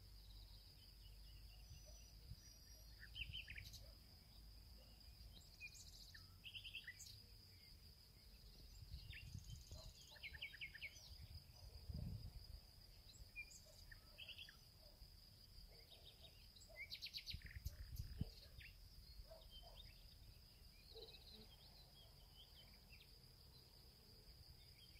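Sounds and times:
bird chirps: 0.2 - 7.7, 8.3 - 12.2, 12.9 - 15.0, 15.6 - 23.6.

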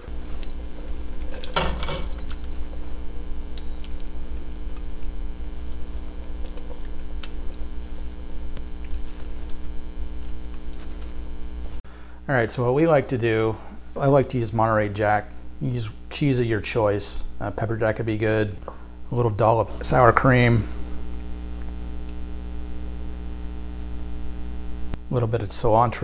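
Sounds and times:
steady low hum: 0.0 - 26.0
ladle clatter: 1.2 - 2.5.

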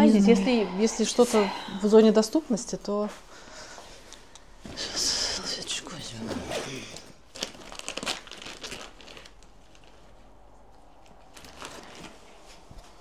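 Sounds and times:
rummaging through a bag: 6.1 - 13.0
plastic packaging crinkling: 7.0 - 12.6.

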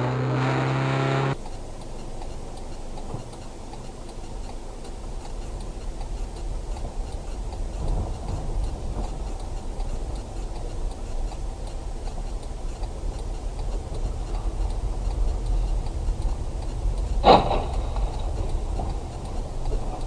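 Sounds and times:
car engine and road rumble: 0.0 - 20.0
faint regular ticking: 1.3 - 20.0
loud thump: 17.2 - 17.8.

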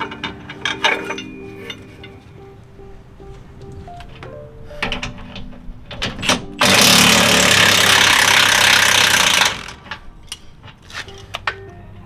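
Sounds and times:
impact wrench hammering: 6.6 - 10.0.

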